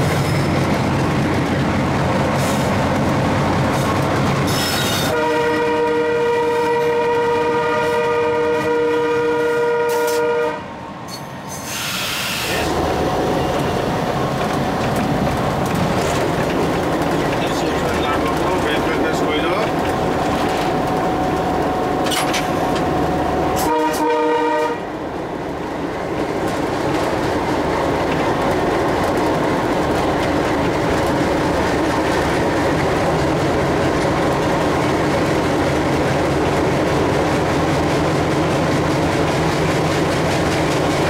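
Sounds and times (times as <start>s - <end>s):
diesel locomotive engine: 0.0s - 41.0s
rail running noise: 0.0s - 41.0s
locomotive horn: 4.9s - 10.8s, 23.4s - 24.9s.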